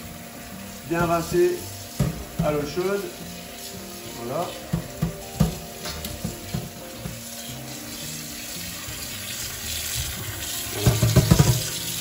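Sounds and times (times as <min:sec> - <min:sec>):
tap water running into sink: 0:00.0 - 0:12.0
knocks and clatters: 0:10.8 - 0:11.8.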